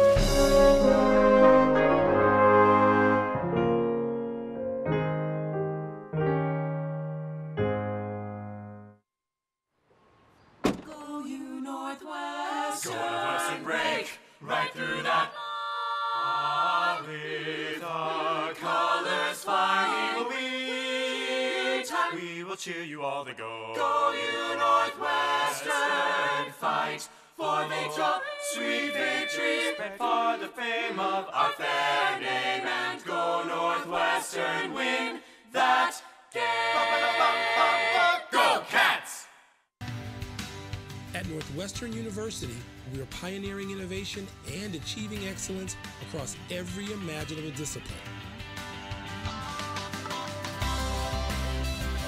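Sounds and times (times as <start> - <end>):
a cappella group singing: 11.0 - 39.4.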